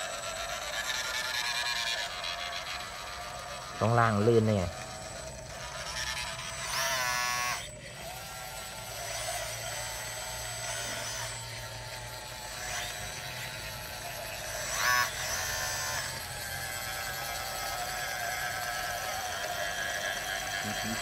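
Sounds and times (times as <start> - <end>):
electric motors whining: 0.0 - 21.0.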